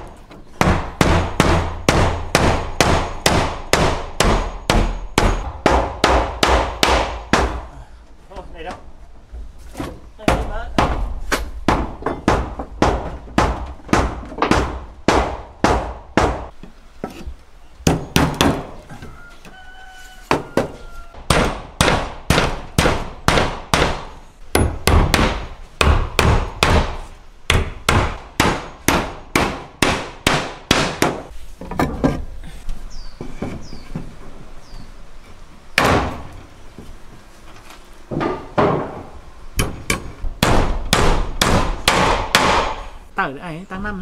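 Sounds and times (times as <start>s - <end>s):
hammer blows: 0.6s - 7.8s.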